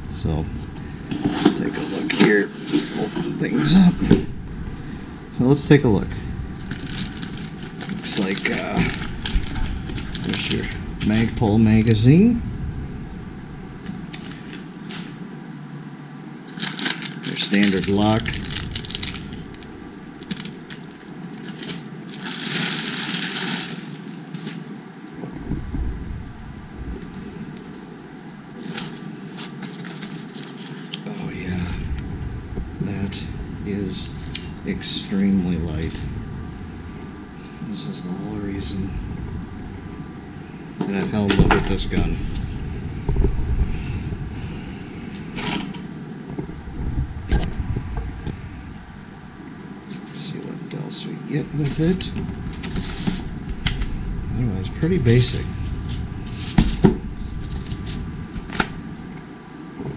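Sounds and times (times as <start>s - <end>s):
plastic bag rustling: 0.0s - 15.4s, 16.4s - 50.3s, 51.4s - 59.9s
rubbing and scraping: 0.6s - 4.5s, 51.6s - 59.9s
plastic bags crinkling: 1.0s - 12.4s, 13.9s - 15.2s, 16.5s - 24.8s, 28.6s - 32.2s.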